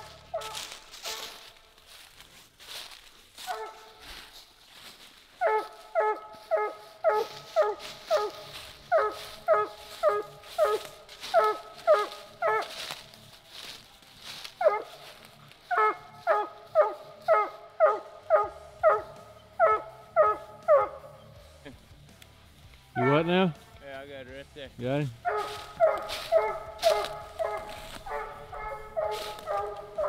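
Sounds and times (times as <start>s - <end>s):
dog barking: 0.0s - 1.4s, 3.4s - 4.1s, 5.4s - 12.8s, 14.6s - 15.0s, 15.7s - 21.0s, 23.0s - 23.3s, 25.2s - 30.0s
footsteps in dry leaves: 0.0s - 30.0s.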